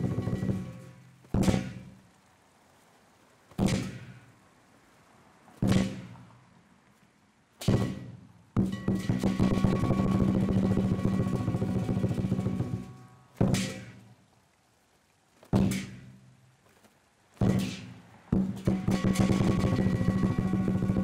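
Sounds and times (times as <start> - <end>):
lion dance drum: 0.0 - 0.8, 8.6 - 13.8, 18.4 - 21.0
cymbals clashing: 8.6 - 14.0
gong: 8.7 - 13.3.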